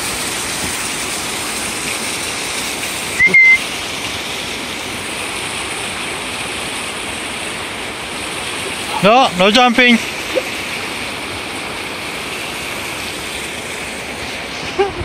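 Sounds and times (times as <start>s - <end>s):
waterfall splashing over rocks: 0.0s - 15.0s
short high whistle: 3.2s - 3.6s.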